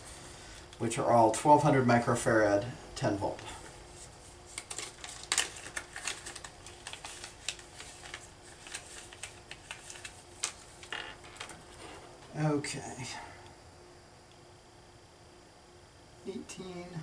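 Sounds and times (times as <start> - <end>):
plastic bag crinkling: 4.5 - 12.2.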